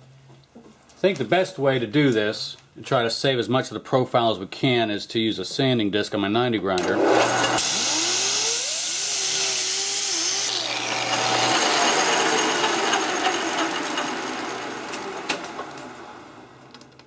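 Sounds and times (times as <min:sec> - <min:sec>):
angle grinder sanding metal: 0:06.9 - 0:15.2
lathe running: 0:06.9 - 0:16.5.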